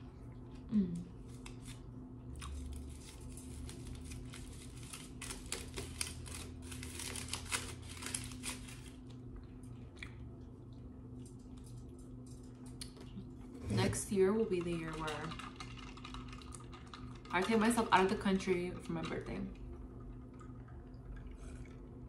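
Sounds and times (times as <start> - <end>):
foil wrapper crinkling: 2.5 - 9.2
chewing with wet mouth clicks: 9.3 - 13.4.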